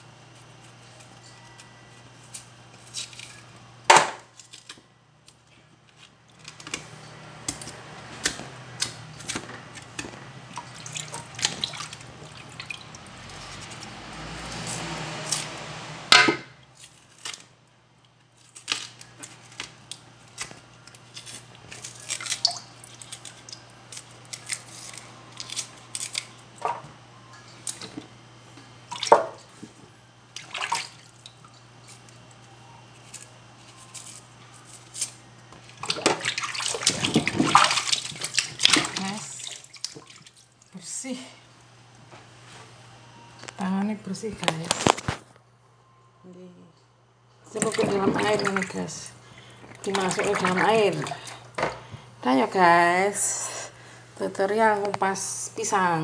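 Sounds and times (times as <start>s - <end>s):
steady low hum: 0.0s - 56.0s
water splashing in basin: 10.5s - 13.6s, 30.4s - 31.2s, 35.8s - 40.4s, 47.6s - 49.1s, 49.7s - 51.4s.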